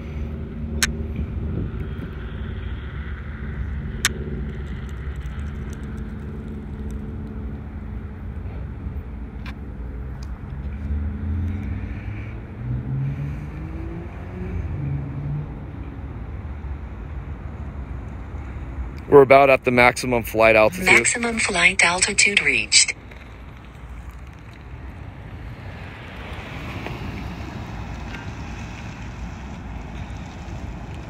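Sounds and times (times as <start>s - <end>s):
vehicle engine rumbling: 0.0s - 19.0s.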